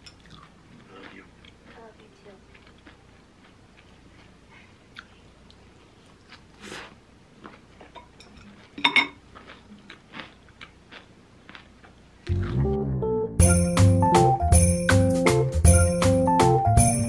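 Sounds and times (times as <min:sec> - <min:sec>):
person chewing: 0:00.0 - 0:12.9
utensils clattering on bowl: 0:08.0 - 0:09.2.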